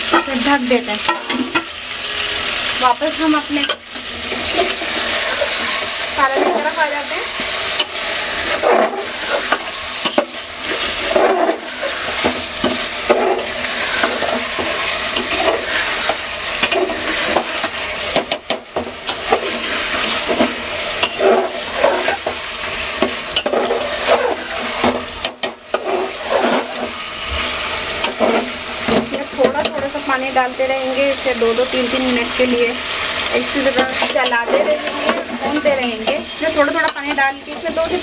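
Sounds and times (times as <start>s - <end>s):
food sizzling in a pot: 0.0s - 38.0s
metal spatula scraping pot: 3.2s - 18.5s, 19.1s - 30.0s, 31.0s - 38.0s.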